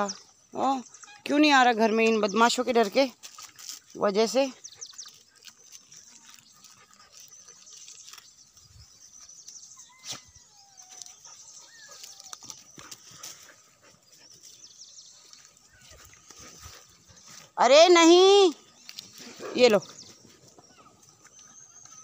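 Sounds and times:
thin whistling calls: 6.6 - 13.5.

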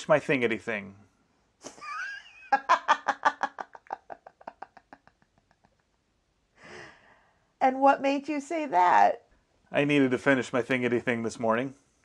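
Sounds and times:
person laughing: 1.6 - 6.0.

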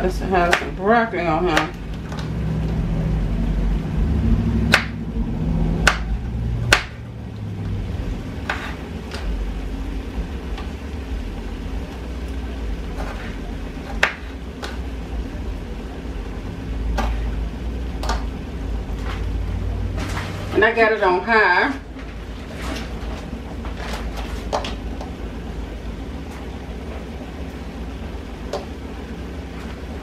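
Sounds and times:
low steady hum: 0.0 - 30.0
knife chopping on cutting board: 0.4 - 0.7, 4.7 - 5.0, 5.8 - 7.0, 8.4 - 9.3, 13.0 - 14.8.

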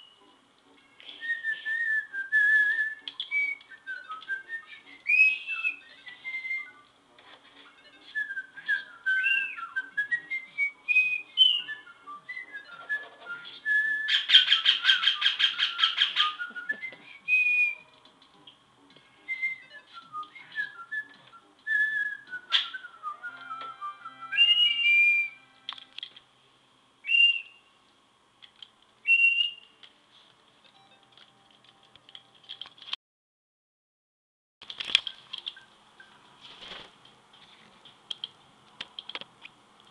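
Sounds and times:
parakeet whistling a tune: 1.2 - 6.9, 7.8 - 17.9, 19.2 - 25.6, 27.0 - 27.7, 29.0 - 29.8.

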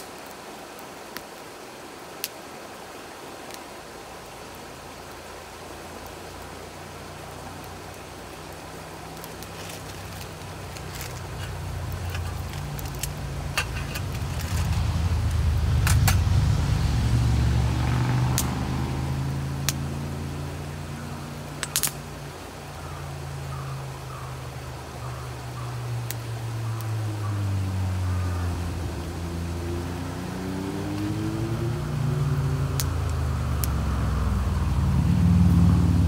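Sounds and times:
wood fire crackling and popping: 2.2 - 2.4, 3.5 - 20.1, 21.2 - 22.8, 25.6 - 27.0, 31.9 - 34.9
vehicle engine passing by: 10.9 - 21.8, 22.9 - 36.0.

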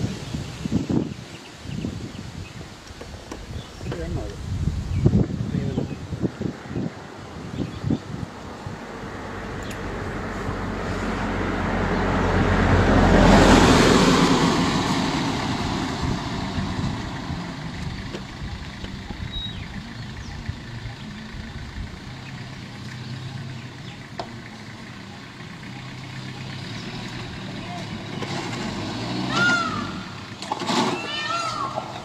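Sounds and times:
vehicle engine idling: 2.6 - 32.0
vehicle passing by: 6.4 - 32.0.

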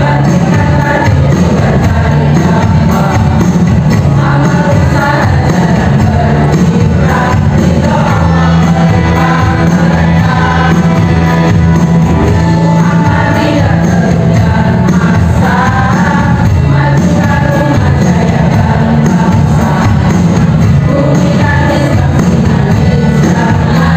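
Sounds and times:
women's choir singing: 0.0 - 23.9.

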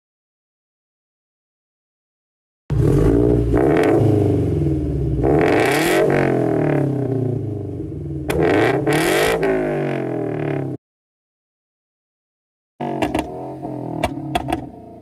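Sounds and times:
car engine revving: 2.7 - 10.8, 12.8 - 15.0
exhaust pops: 12.8 - 14.8.

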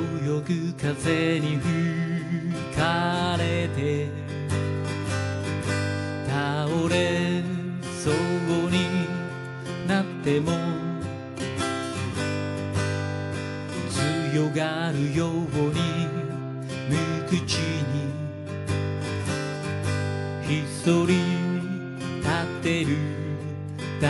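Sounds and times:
man singing: 0.0 - 5.0, 6.1 - 11.4, 13.8 - 18.6, 20.4 - 24.0
acoustic guitar strummed: 0.0 - 24.0.

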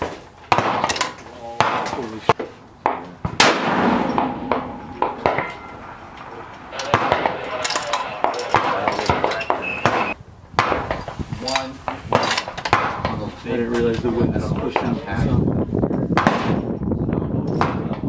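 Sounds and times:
rifle shot with echo: 0.5 - 1.0, 3.4 - 6.1, 6.8 - 7.6
sharp metallic clinks: 4.0 - 6.1.

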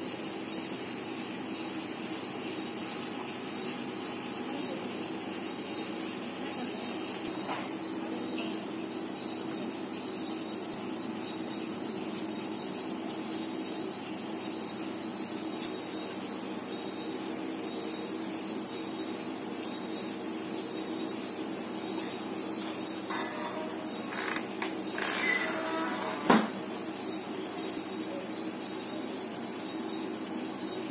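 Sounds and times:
night insects trilling: 0.0 - 30.9.

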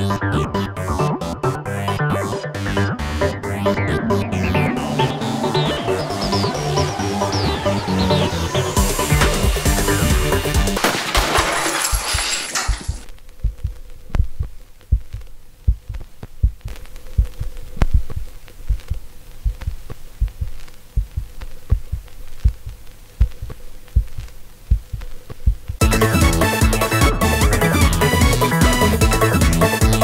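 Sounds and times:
electronic music: 0.0 - 10.8, 25.8 - 30.0
faint steady hum: 13.0 - 25.8
heartbeat thumps: 13.3 - 26.0.

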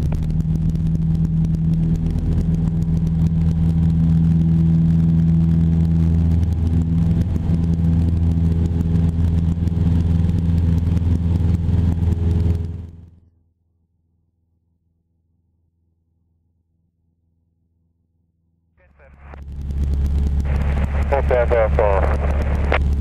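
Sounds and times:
propeller plane engine running: 0.0 - 13.3, 18.8 - 23.0.

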